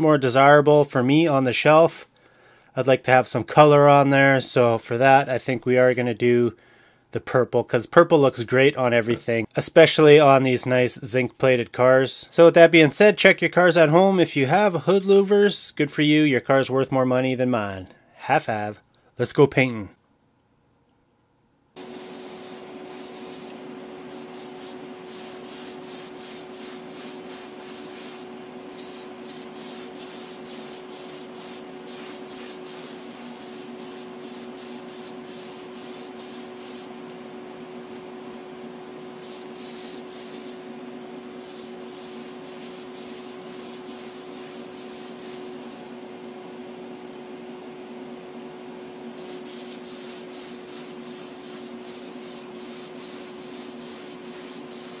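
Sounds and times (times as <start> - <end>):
electric hum: 21.7 - 55.0
airbrush spraying hiss: 21.8 - 36.9, 39.2 - 40.6, 41.4 - 46.0, 49.2 - 55.0.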